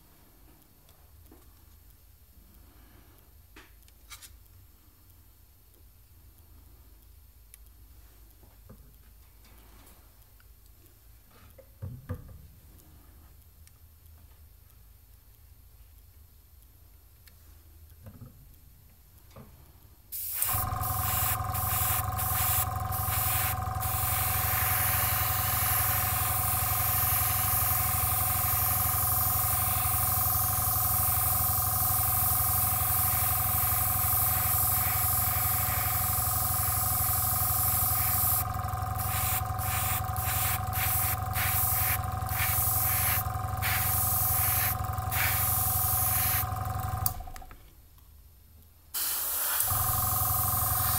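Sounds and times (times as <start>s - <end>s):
airbrush hissing in spurts: 20.1s - 47.2s, 49.0s - 50.9s
compressor humming: 20.2s - 47.7s, 49.0s - 50.9s.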